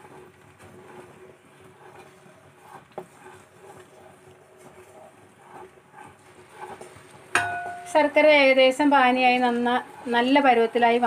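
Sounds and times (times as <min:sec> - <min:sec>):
thick syrup bubbling in a pan: 0:00.0 - 0:07.4
wooden spatula scraping a pan: 0:00.0 - 0:11.0.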